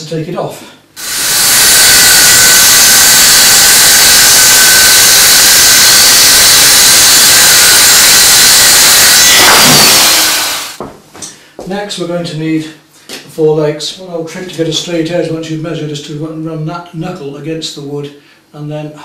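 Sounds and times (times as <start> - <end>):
electric saw cutting wood: 1.0 - 10.8.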